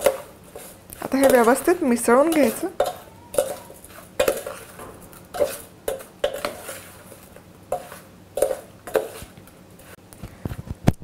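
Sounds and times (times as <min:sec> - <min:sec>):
metal spoon clinking on steel: 0:01.0 - 0:04.7.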